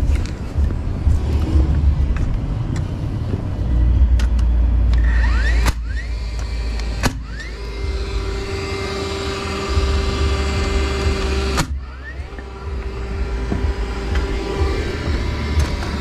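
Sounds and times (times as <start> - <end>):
steady hum: 0.0 - 16.0
nailer whine resetting: 4.2 - 16.0.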